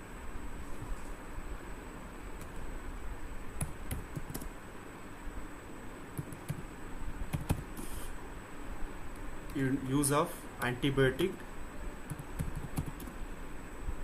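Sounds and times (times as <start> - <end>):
keyboard typing: 3.6 - 4.5, 6.2 - 6.7, 7.3 - 7.9, 12.1 - 13.1.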